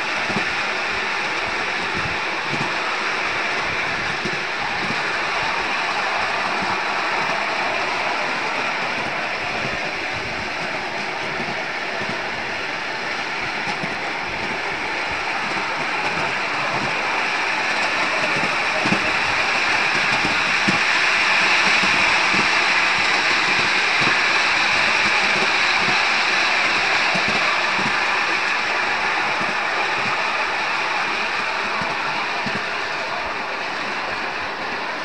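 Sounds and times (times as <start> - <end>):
miniature steam train hissing: 0.0 - 35.0
running gear knocking: 13.4 - 33.2.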